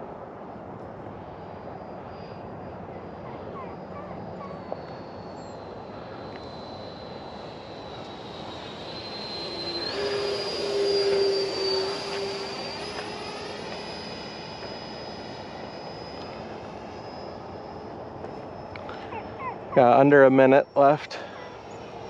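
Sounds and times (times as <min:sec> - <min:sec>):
model jet fan whine: 0:00.0 - 0:22.0.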